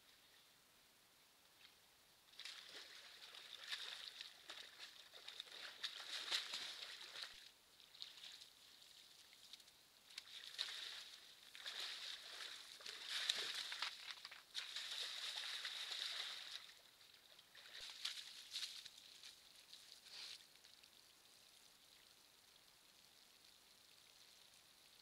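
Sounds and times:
water sloshing and splashing: 0:02.3 - 0:08.6, 0:10.1 - 0:20.3.

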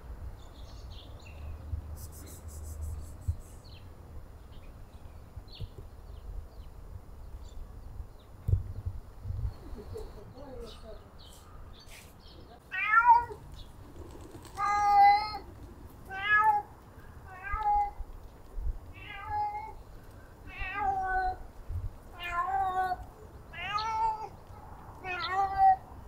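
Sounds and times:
cat meowing: 0:12.7 - 0:13.4, 0:14.6 - 0:15.4, 0:16.1 - 0:16.7, 0:17.3 - 0:18.0, 0:18.9 - 0:19.8, 0:20.4 - 0:21.4, 0:22.1 - 0:24.3, 0:25.0 - 0:25.8.

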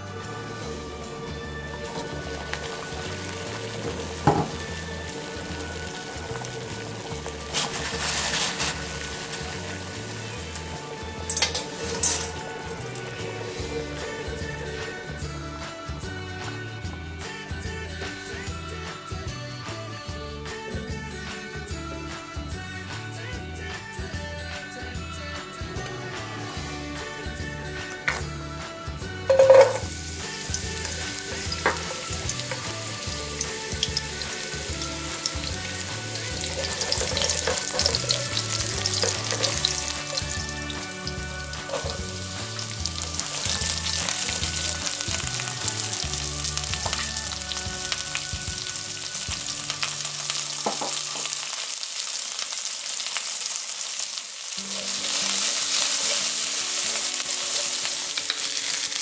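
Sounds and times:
garlic and onion sizzling in oil: 0:00.0 - 0:15.4, 0:29.3 - 0:59.0
spatula stirring in pan: 0:01.8 - 0:13.1, 0:29.4 - 0:45.9.

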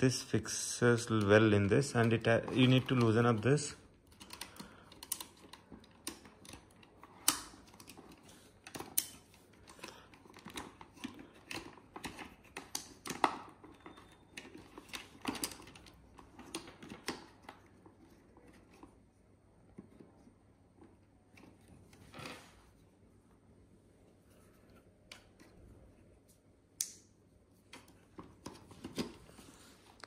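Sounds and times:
plastic clicks and rattles of camera case: 0:01.1 - 0:19.0, 0:27.7 - 0:29.4.

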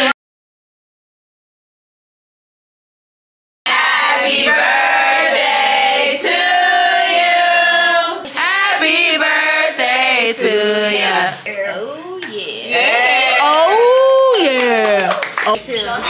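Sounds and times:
women singing together: 0:03.7 - 0:11.5.

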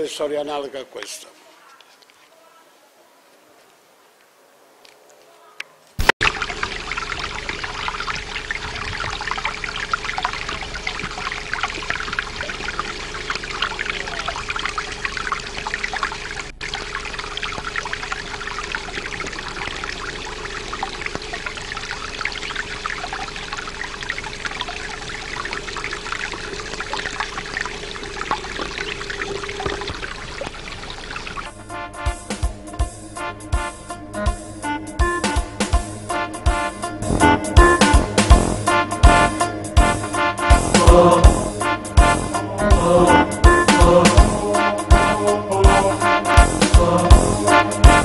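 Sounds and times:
water trickling over rock: 0:06.0 - 0:31.7
faint steady hum: 0:06.2 - 0:48.0.

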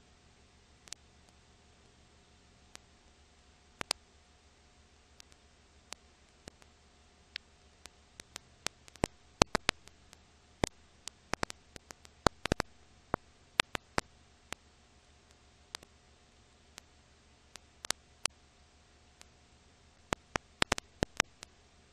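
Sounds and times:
faint hum and hiss: 0:00.0 - 0:21.9
film surface clicks and pops: 0:03.8 - 0:04.0, 0:05.2 - 0:06.7, 0:07.3 - 0:14.6, 0:15.7 - 0:15.9, 0:20.0 - 0:21.6.

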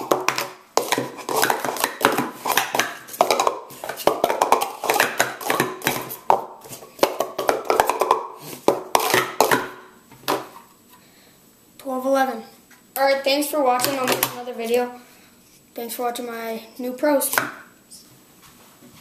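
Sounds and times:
plastic cups clattering: 0:00.0 - 0:10.7, 0:13.8 - 0:14.4.

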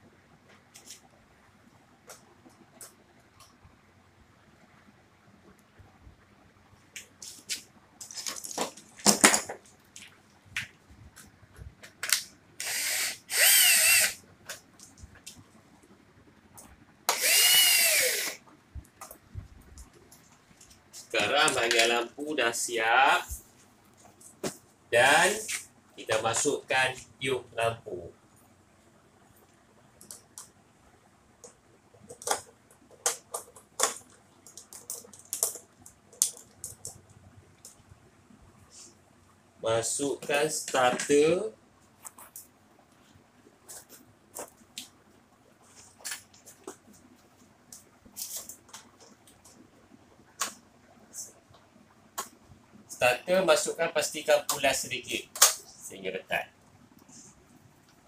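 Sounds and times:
cordless drill driving screw: 0:12.6 - 0:14.2, 0:17.1 - 0:18.4.

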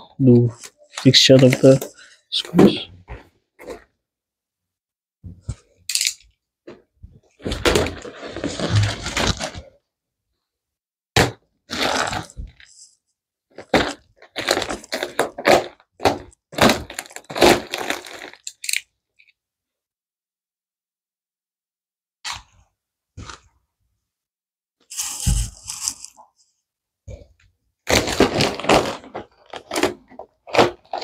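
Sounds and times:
plastic wrap crinkling and tearing: 0:07.4 - 0:09.8, 0:11.7 - 0:12.8, 0:13.5 - 0:18.9, 0:27.9 - 0:31.0.

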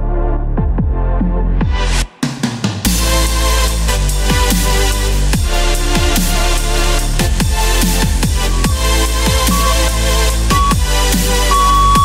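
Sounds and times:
electronic music with heavy bass: 0:02.8 - 0:12.0.

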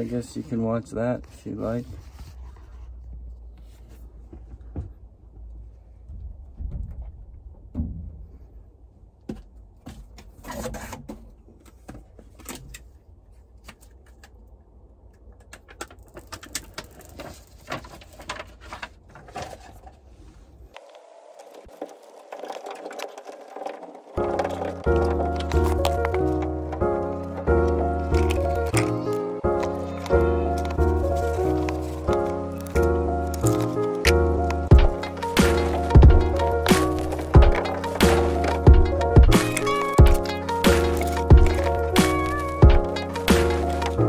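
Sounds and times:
foil mat rustling and crinkling: 0:16.6 - 0:33.9, 0:34.8 - 0:44.0.

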